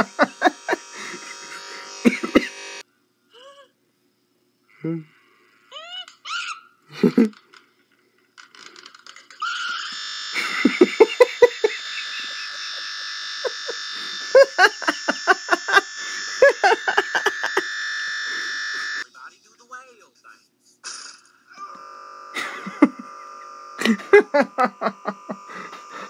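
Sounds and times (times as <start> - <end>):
person laughing in bursts: 0.0 - 2.6, 6.9 - 7.4, 10.4 - 17.7, 22.4 - 26.0
harsh looping buzz: 0.0 - 2.8, 9.5 - 19.1, 21.6 - 26.0.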